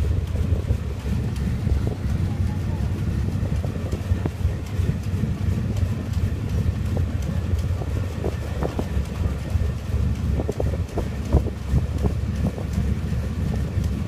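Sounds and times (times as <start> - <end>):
boat engine rumbling: 0.0 - 14.0
wind buffeting microphone: 0.0 - 14.0.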